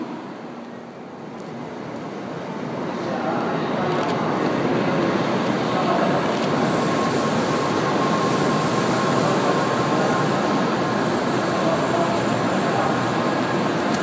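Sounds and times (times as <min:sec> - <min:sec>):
thin steady whine: 0:00.0 - 0:14.0.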